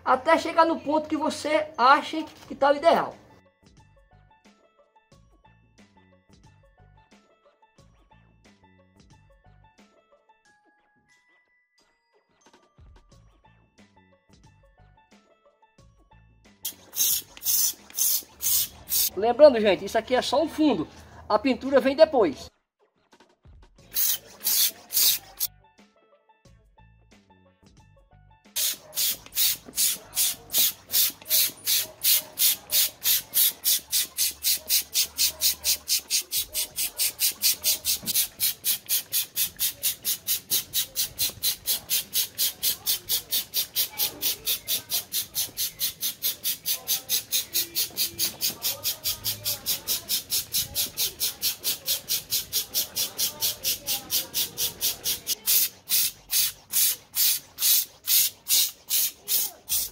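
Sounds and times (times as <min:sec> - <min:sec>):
hand-pumped paint sprayer hissing: 0:16.7 - 0:19.2, 0:23.9 - 0:25.5, 0:28.6 - 0:59.9.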